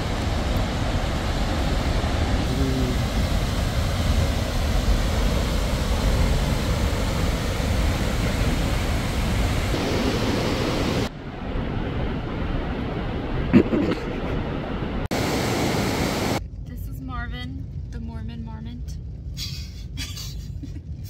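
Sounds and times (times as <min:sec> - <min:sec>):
waterfall roaring: 0:00.0 - 0:16.4.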